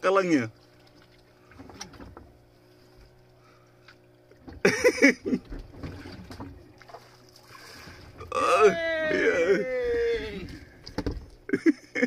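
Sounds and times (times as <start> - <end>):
boat engine low hum: 0.0 - 12.0
person shouting: 8.2 - 10.6.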